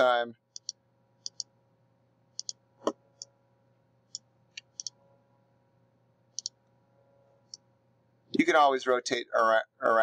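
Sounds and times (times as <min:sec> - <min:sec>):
faint steady hum: 0:00.0 - 0:10.0
computer mouse clicking: 0:00.5 - 0:01.5, 0:02.4 - 0:02.6, 0:04.1 - 0:05.0, 0:06.3 - 0:06.6.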